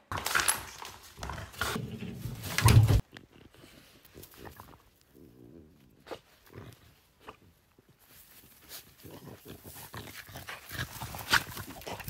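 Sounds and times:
paws digging in sand and gravel: 0:02.4 - 0:12.0
dog snorting and grunting: 0:08.8 - 0:12.0.

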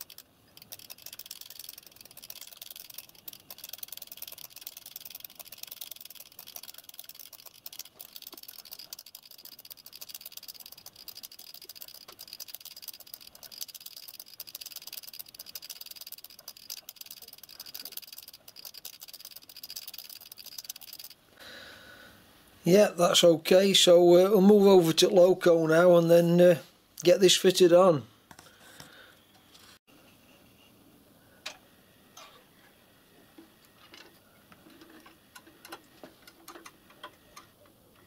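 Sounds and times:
lubricator mechanism clicking rapidly: 0:00.0 - 0:21.2.

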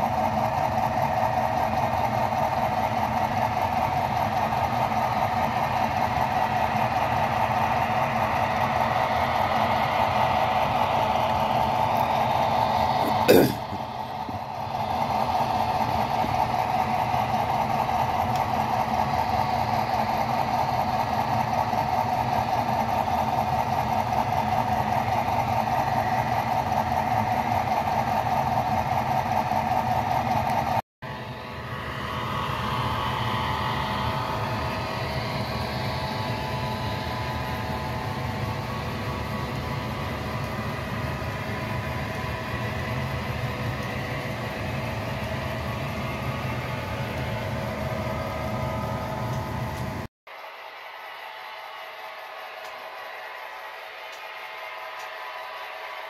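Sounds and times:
model train running on track: 0:00.0 - 0:56.0.

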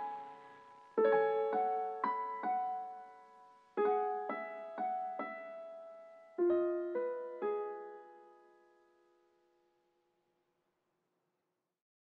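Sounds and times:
soft piano melody: 0:00.0 - 0:09.7.

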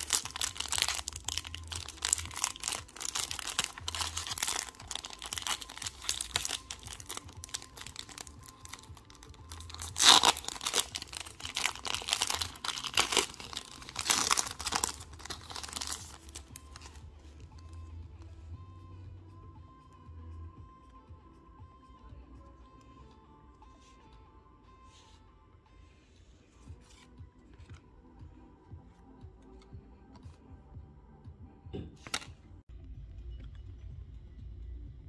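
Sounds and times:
foil pack ripping: 0:00.0 - 0:16.3
foil wrapper crinkling: 0:00.0 - 0:16.9.

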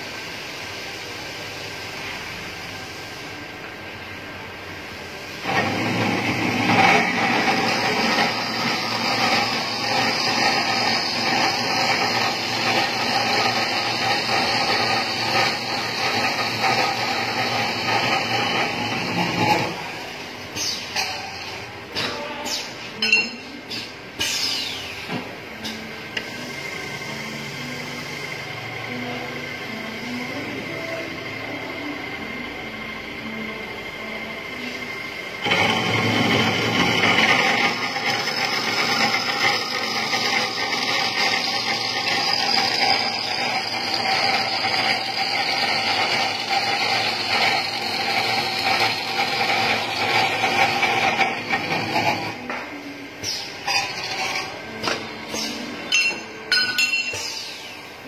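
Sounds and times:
saw blade cutting metal: 0:05.4 - 0:19.8, 0:35.4 - 0:52.5, 0:53.2 - 0:57.5.

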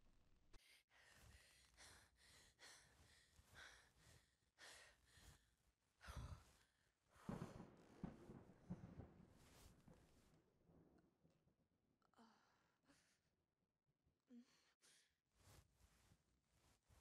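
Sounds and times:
person breathing heavily: 0:00.6 - 0:07.7.

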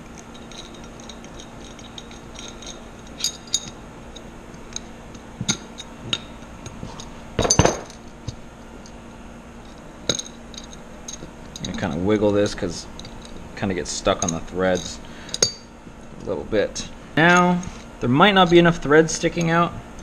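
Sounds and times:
light metal clinks and ticks: 0:00.0 - 0:06.5, 0:14.0 - 0:15.7.

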